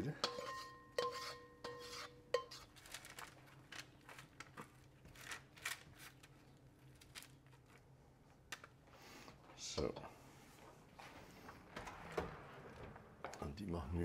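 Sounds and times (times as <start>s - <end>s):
spatula scraping baking tray: 0.2s - 2.7s.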